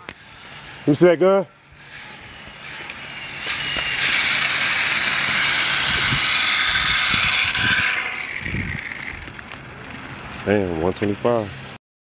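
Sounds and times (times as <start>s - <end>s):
electric motor whining: 1.6s - 10.3s.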